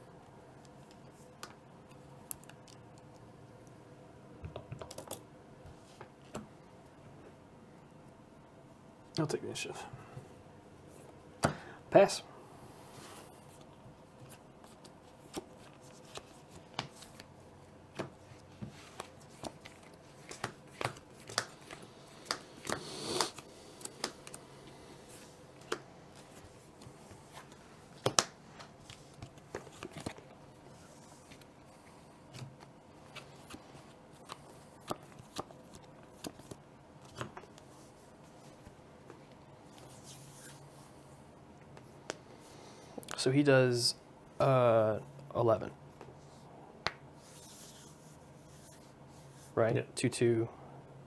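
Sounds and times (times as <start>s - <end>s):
playing cards clicking and tapping: 4.4s - 5.2s, 14.8s - 17.2s, 17.9s - 24.4s, 25.6s - 26.3s, 27.3s - 30.3s.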